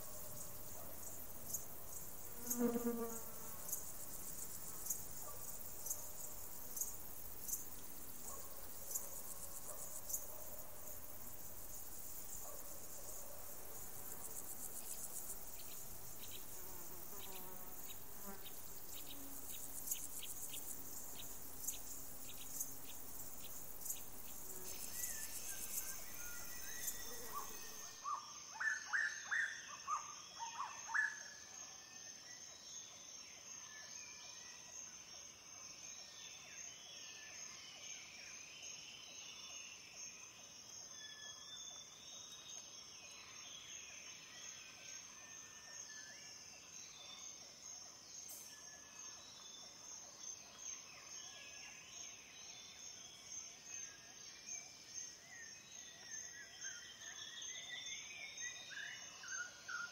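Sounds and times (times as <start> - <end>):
high insect buzzing with chirps: 0.0 - 28.0.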